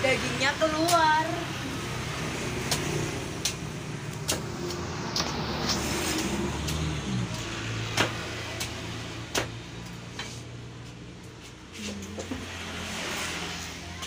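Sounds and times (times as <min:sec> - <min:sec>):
machete chopping coconut: 0:02.6 - 0:10.3.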